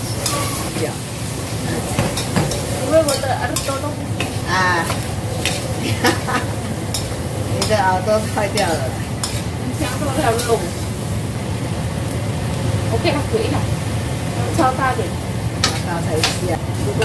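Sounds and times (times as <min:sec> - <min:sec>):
metal spatula scraping a wok: 0:00.0 - 0:10.8, 0:15.6 - 0:17.0
food sizzling in a wok: 0:00.0 - 0:17.0.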